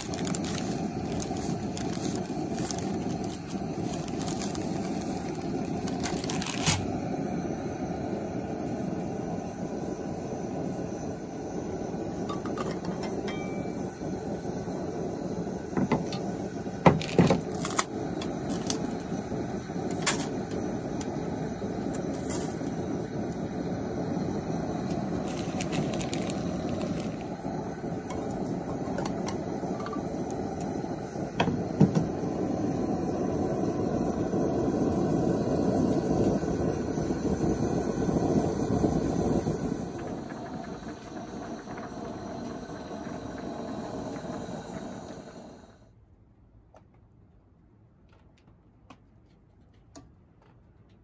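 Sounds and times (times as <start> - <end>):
gas burner flame rushing: 0.0 - 46.0
water boiling in pot: 0.0 - 46.0.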